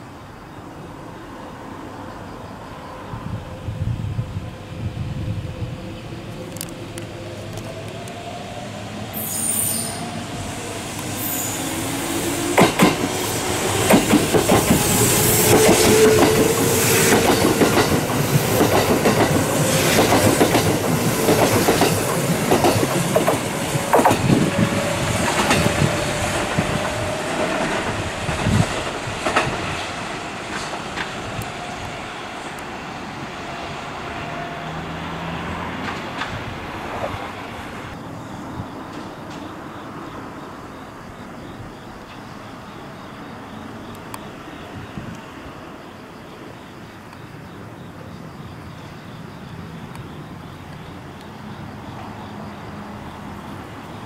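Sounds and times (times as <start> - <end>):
electric train passing: 0.0 - 54.0
rising train whine: 0.0 - 54.0
wheels clacking over rail joints: 11.8 - 31.6, 35.2 - 37.1.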